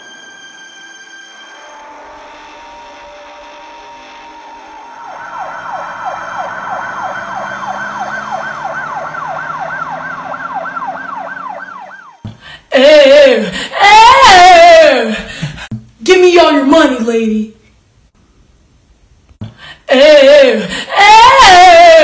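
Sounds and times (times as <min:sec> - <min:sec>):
steady held tone: 0:00.0 - 0:08.9
yelp siren wailing: 0:00.0 - 0:12.2, 0:13.8 - 0:14.9, 0:21.0 - 0:22.0.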